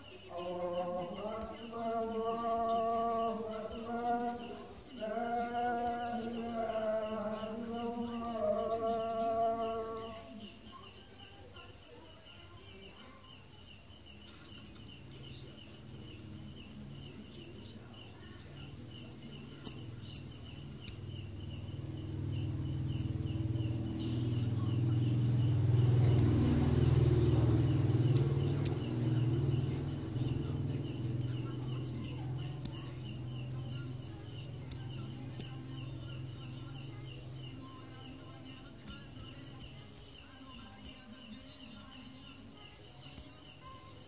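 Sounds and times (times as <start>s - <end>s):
insects chirping: 0.0s - 44.0s
person singing: 0.3s - 10.6s.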